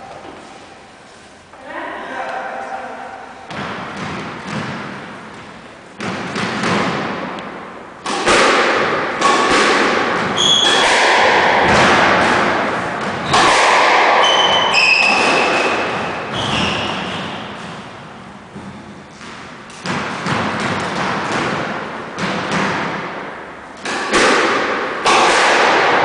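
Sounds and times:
ball smacking walls: 0:03.5 - 0:26.0
squash ball struck by rackets: 0:03.5 - 0:26.0
sneakers squeaking on wooden floor: 0:10.2 - 0:11.0, 0:14.1 - 0:21.4.

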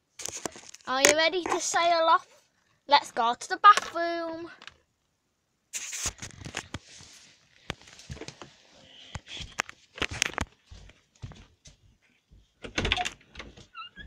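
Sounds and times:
footsteps: 0:06.9 - 0:12.5.

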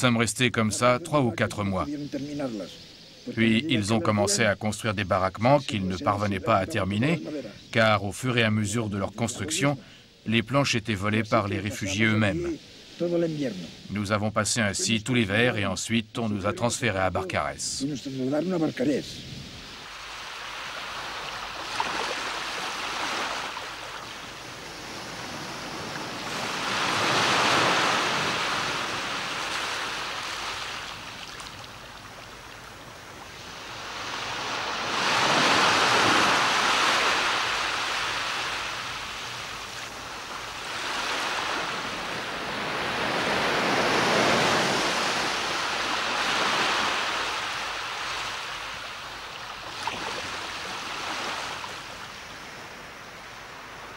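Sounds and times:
sea waves breaking on beach: 0:19.4 - 0:53.9.

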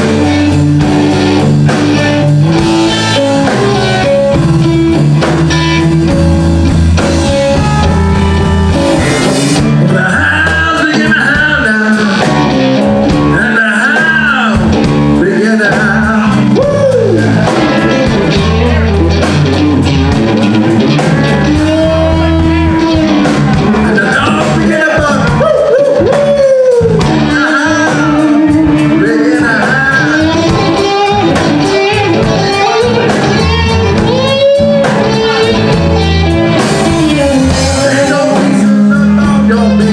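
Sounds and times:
drums: 0:00.0 - 0:39.9
electric bass: 0:00.0 - 0:39.9
electric guitar lead: 0:00.0 - 0:39.9.

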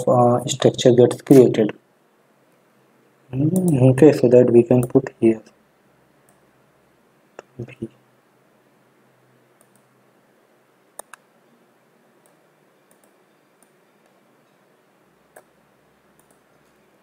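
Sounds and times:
computer mouse clicks: 0:03.5 - 0:03.8, 0:09.6 - 0:09.9, 0:11.0 - 0:11.3, 0:12.2 - 0:14.2, 0:15.3 - 0:16.8.

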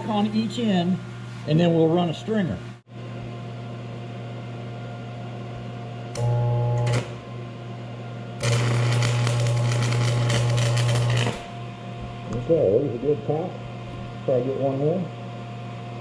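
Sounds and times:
arc welder humming: 0:04.6 - 0:16.0
welding arc crackle: 0:06.2 - 0:07.2, 0:08.4 - 0:11.6.

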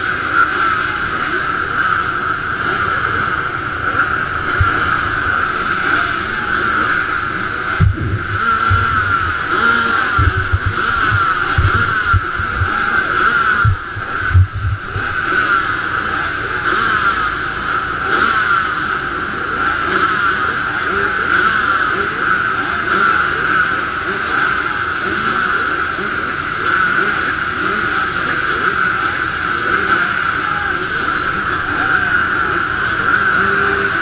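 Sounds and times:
motocross bikes revving: 0:00.0 - 0:34.0
low thumps: 0:07.7 - 0:15.2.

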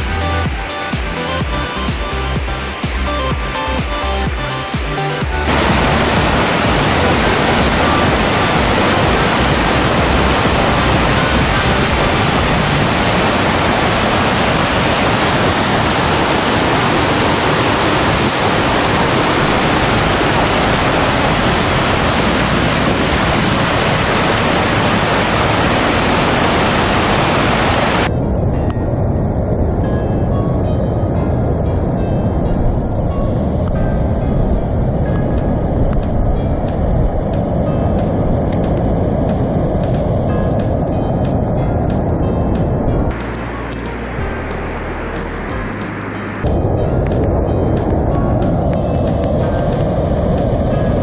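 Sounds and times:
whitewater rushing over rock: 0:00.0 - 0:28.1.

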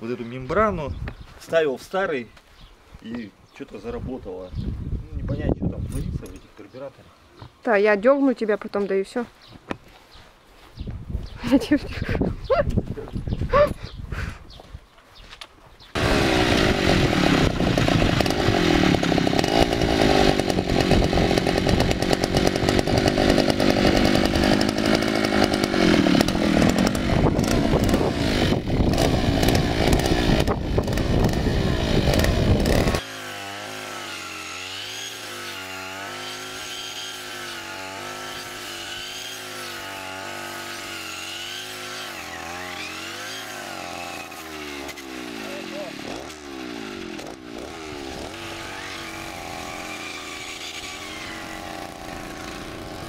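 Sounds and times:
brush cutter engine at high revs: 0:15.9 - 0:53.0.

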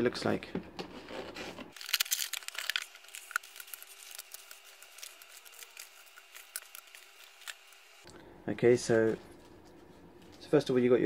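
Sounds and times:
plastic bags crinkling: 0:01.7 - 0:08.0.

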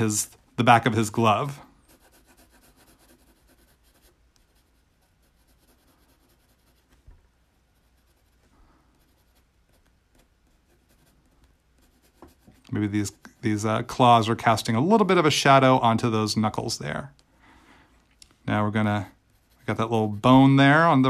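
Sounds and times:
pencil scratching on paper: 0:01.7 - 0:07.0, 0:07.7 - 0:13.3, 0:19.1 - 0:20.9.

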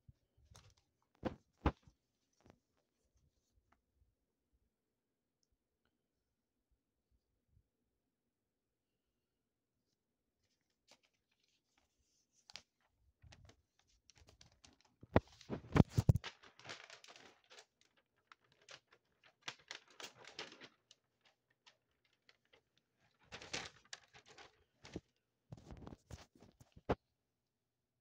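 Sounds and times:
paper leaflet rustling: 0:10.4 - 0:27.0.

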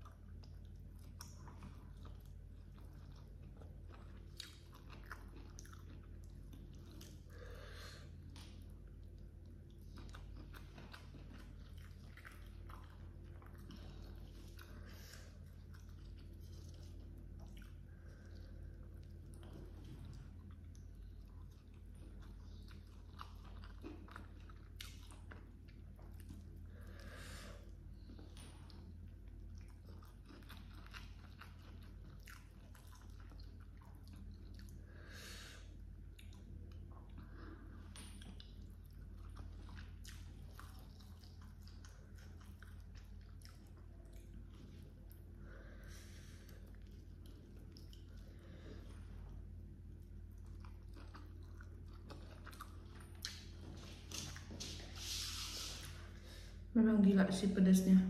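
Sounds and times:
person chewing food: 0:00.0 - 0:56.7
steady low hum: 0:00.0 - 0:58.0
wet mouth clicks and crunches: 0:50.0 - 0:54.7.

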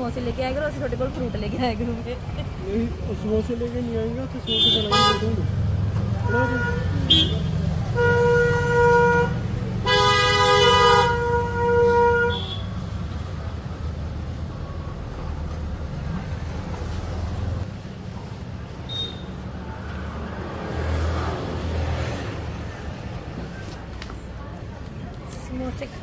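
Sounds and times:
low rumble of street traffic: 0:00.0 - 0:26.0
vehicle horns honking: 0:04.4 - 0:05.4, 0:06.2 - 0:12.8.

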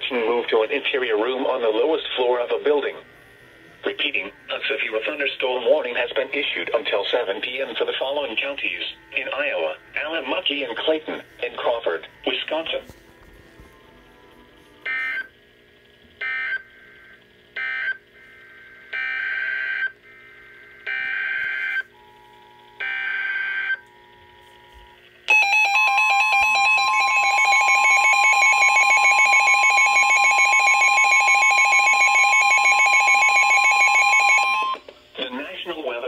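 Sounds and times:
steady warning tone: 0:00.0 - 0:12.9, 0:16.2 - 0:34.8
rapid alarm beeping: 0:14.8 - 0:15.4, 0:16.2 - 0:23.9, 0:25.3 - 0:34.8.

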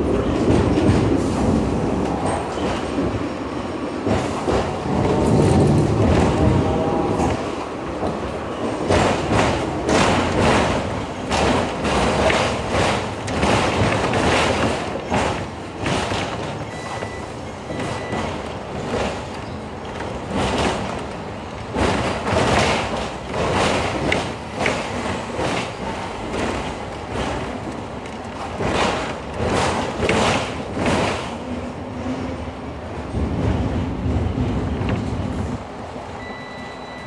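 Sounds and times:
tram rattling: 0:00.0 - 0:37.0
tram running noise: 0:00.0 - 0:37.0
wheels clattering over rails: 0:04.0 - 0:31.6.

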